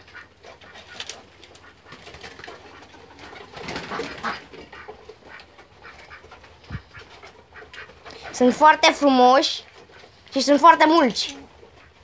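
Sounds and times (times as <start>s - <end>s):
pigeons cooing: 0.0s - 8.6s
pigeons pecking at grain: 0.0s - 12.0s.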